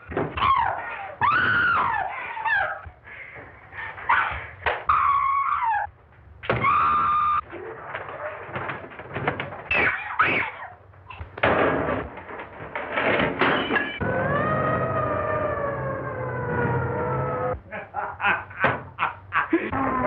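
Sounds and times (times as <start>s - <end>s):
long wailing falling tone: 14.0s - 17.6s
short rising cries: 14.0s - 17.6s.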